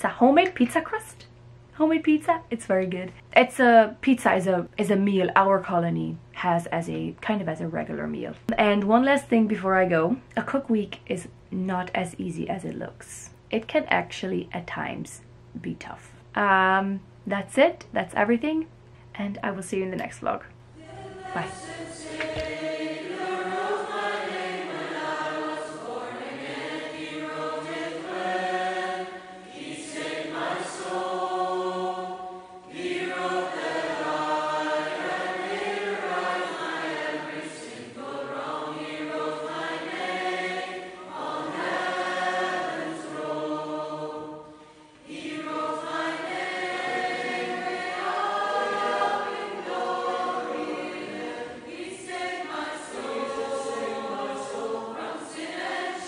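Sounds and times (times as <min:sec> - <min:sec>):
choir singing slow hymn: 0:20.8 - 0:56.0
singers breathing: 0:44.4 - 0:45.1.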